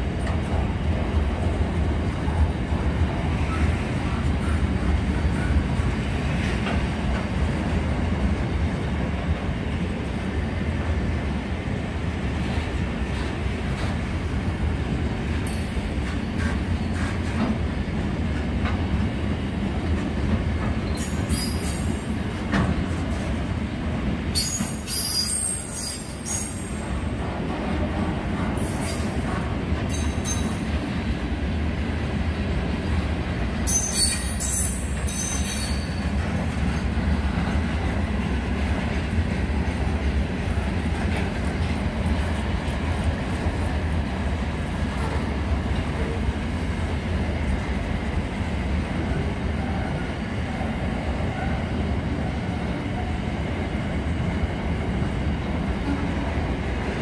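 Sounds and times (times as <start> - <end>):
train wheels rumbling on rail: 0.0 - 57.0
metallic squeals: 24.3 - 26.6.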